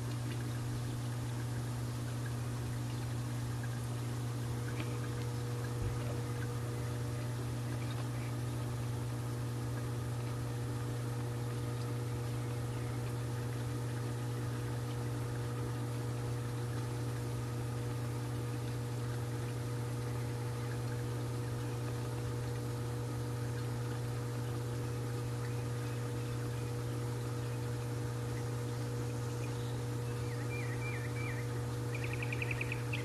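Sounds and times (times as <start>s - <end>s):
pool cleaner motor humming underwater: 0.0s - 33.0s.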